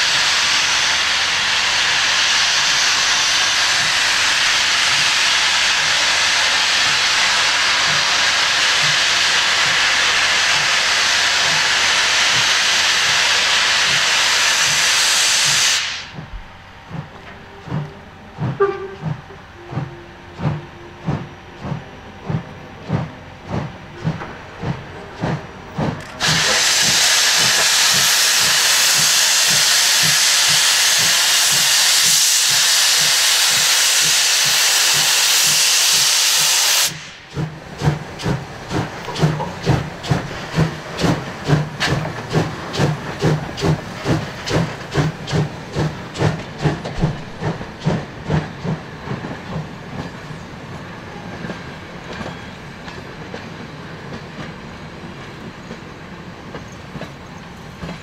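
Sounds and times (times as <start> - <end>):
hiss of escaping steam: 0.0 - 16.3, 25.9 - 50.4
steam locomotive exhaust beats: 0.0 - 58.0
coaches rattling over rail joints: 37.3 - 58.0.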